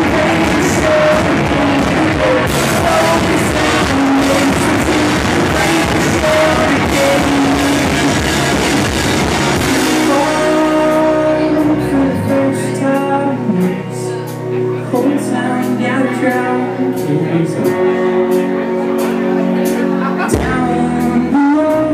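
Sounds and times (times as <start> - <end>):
drum kit: 0.0 - 21.9
electric guitars: 0.0 - 21.9
keyboard: 0.0 - 21.9
person singing: 0.0 - 21.9.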